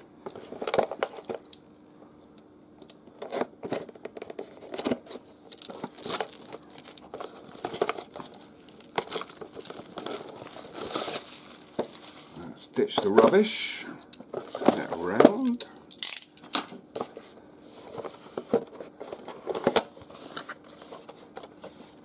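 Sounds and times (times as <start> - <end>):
plastic wrap crinkling: 3.2 - 13.6
knife slitting shrink wrap: 5.5 - 12.1.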